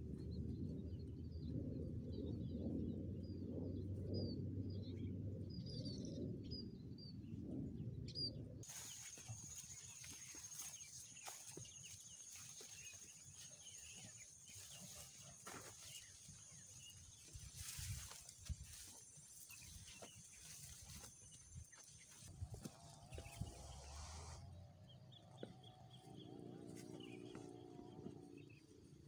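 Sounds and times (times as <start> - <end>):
birds chirping: 8.1 - 29.0
footsteps through tall grass: 8.6 - 24.4, 25.2 - 29.0.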